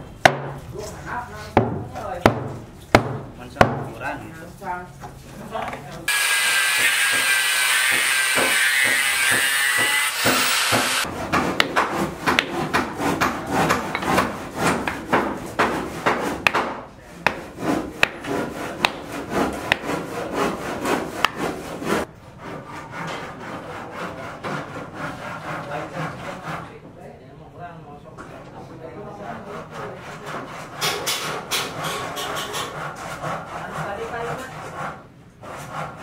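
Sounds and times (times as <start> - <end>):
angle grinder cutting steel: 6.1 - 11.1.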